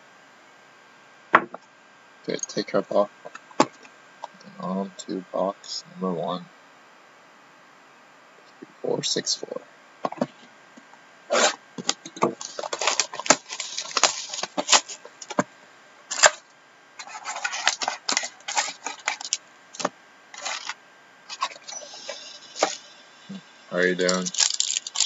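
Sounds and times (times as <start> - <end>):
card packs crinkling: 11.3 - 15.4, 16.1 - 16.4, 17.0 - 21.9, 24.0 - 25.0.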